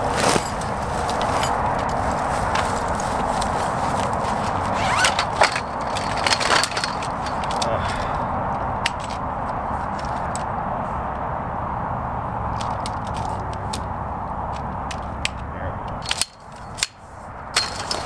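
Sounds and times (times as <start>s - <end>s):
nylon sack rustling: 0.0s - 7.4s
frame poles clacking: 0.0s - 10.5s, 12.5s - 13.9s, 14.5s - 18.0s
steady background rumble: 0.0s - 18.0s.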